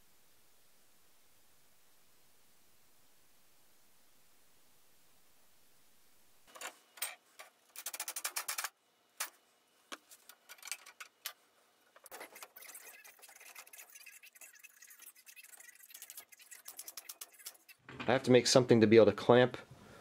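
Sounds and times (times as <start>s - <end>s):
wooden parts clicking and tapping: 6.5s - 9.3s, 9.9s - 12.6s
scraping and rubbing: 10.0s - 11.3s, 12.0s - 17.9s
rapid ticks: 12.1s - 17.8s.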